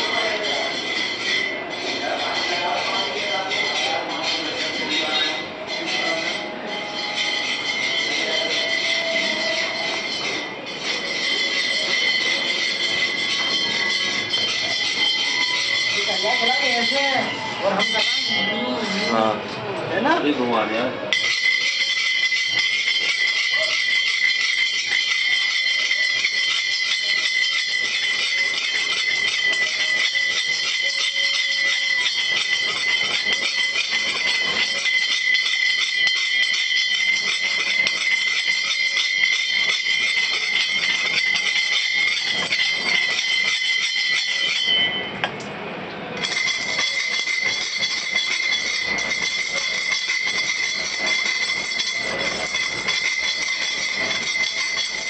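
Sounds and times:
hand tool scraping metal urn: 0:00.0 - 0:19.3, 0:21.1 - 0:44.9.

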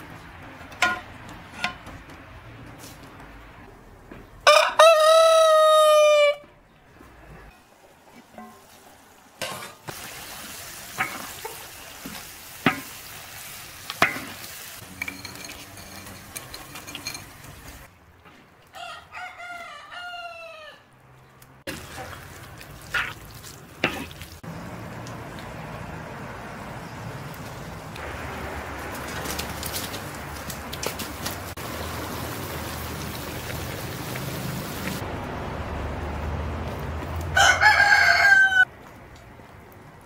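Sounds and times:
rooster crowing: 0:04.4 - 0:06.5, 0:18.7 - 0:20.9, 0:37.3 - 0:38.7
spinach sizzling in a wok: 0:09.6 - 0:16.5, 0:31.6 - 0:35.0.

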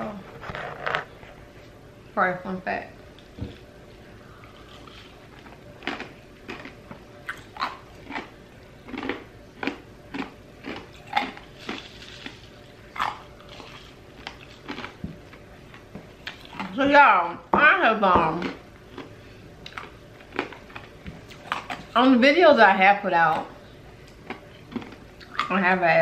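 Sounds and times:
crushed ice being chewed: 0:04.4 - 0:16.8, 0:18.4 - 0:22.0, 0:24.1 - 0:25.5.

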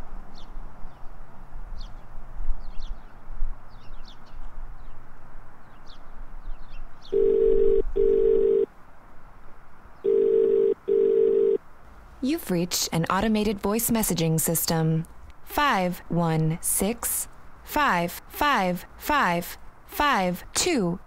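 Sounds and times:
telephone ringback tone: 0:07.2 - 0:08.7, 0:10.1 - 0:11.6.

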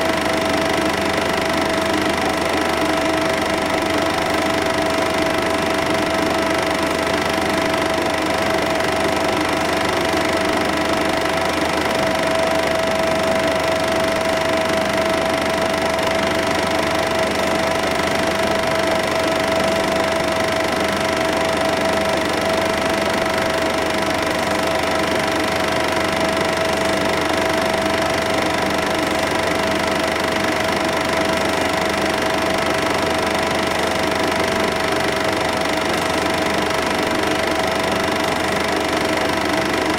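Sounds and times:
film projector whirring: 0:00.0 - 0:39.9.

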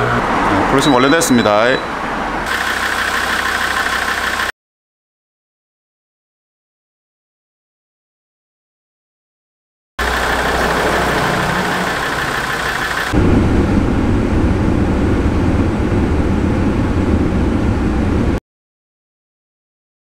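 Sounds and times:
car engine idling: 0:02.1 - 0:04.5, 0:10.0 - 0:18.2.

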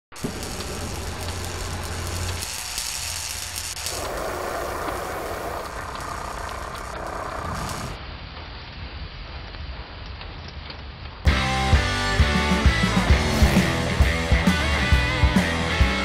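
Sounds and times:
crackling hiss of sparks: 0:00.0 - 0:11.1.

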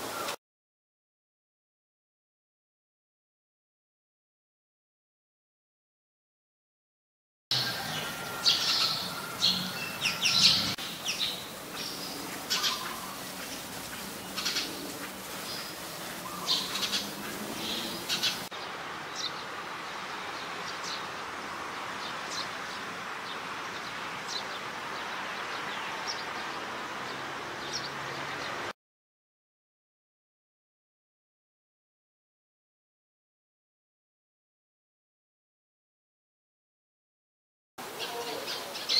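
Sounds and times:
sparrows chirping: 0:07.5 - 0:28.7, 0:37.9 - 0:38.9
steady hiss: 0:08.7 - 0:22.0.

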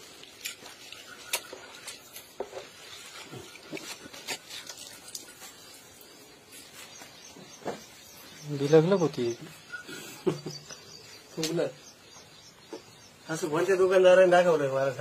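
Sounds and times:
water splashing and dripping: 0:00.0 - 0:07.2.

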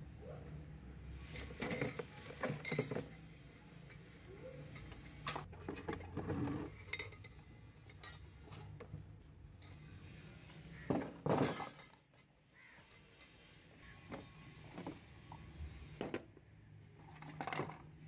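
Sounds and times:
hard objects clinking: 0:01.3 - 0:03.3.

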